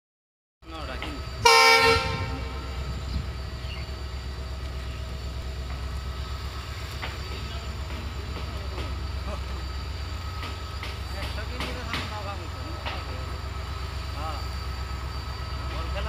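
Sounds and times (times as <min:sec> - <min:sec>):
diesel engine throbbing: 0:00.6 - 0:16.0
locomotive horn blast: 0:01.4 - 0:02.9.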